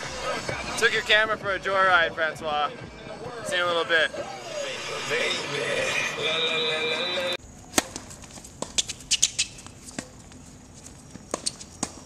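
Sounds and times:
tennis balls struck with rackets: 7.7s - 10.2s, 11.2s - 12.0s.

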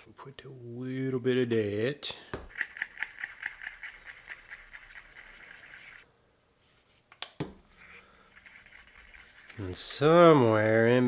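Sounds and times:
stick scraping paint cup: 7.8s - 10.8s.

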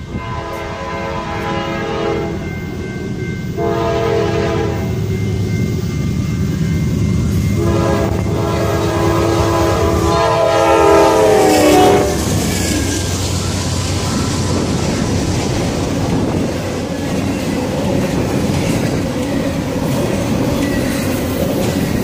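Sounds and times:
train wheels rumbling: 0.0s - 22.0s
locomotive air horn blasts: 0.1s - 2.4s, 3.6s - 5.0s, 7.6s - 12.4s.

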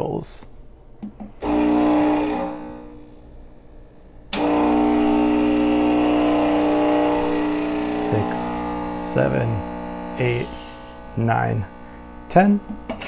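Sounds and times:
espresso machine pump humming: 1.4s - 3.1s, 4.4s - 13.0s.

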